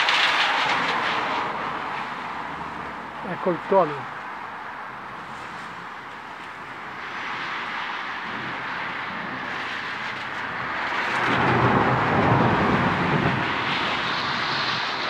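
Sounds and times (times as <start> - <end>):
rain hissing: 0.0 - 15.0
thunder rumbling: 8.3 - 15.0.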